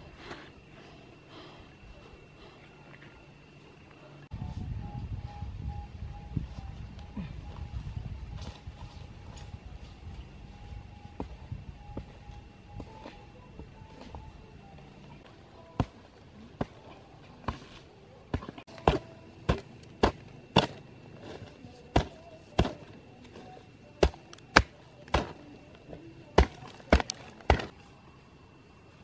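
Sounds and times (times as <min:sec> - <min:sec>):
hoe chopping into earth: 0:18.3 - 0:20.8, 0:21.4 - 0:22.9, 0:24.0 - 0:25.4, 0:26.4 - 0:27.7.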